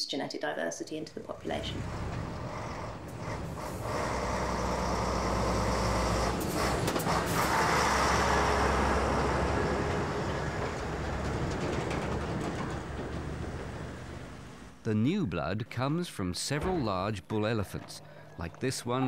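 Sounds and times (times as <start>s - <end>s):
heavy truck diesel engine passing: 1.2s - 14.8s.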